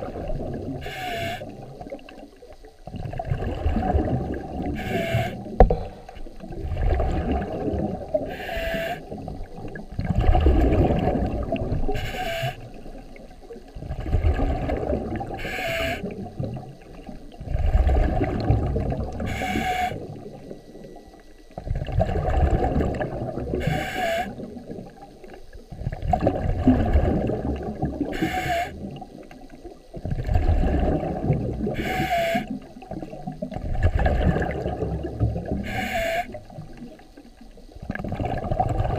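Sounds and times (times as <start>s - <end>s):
exhaled bubbles rumbling: 0.0s - 38.9s
regulator inhalation hiss: 8.1s - 9.2s, 11.9s - 12.7s, 19.3s - 20.0s, 23.6s - 24.4s, 28.2s - 28.8s, 31.8s - 32.5s, 35.6s - 36.4s.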